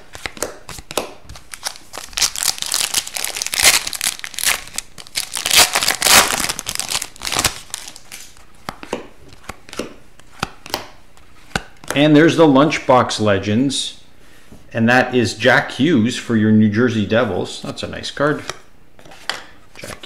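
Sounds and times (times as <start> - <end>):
foil wrapper crinkling and tearing: 1.4 - 8.2.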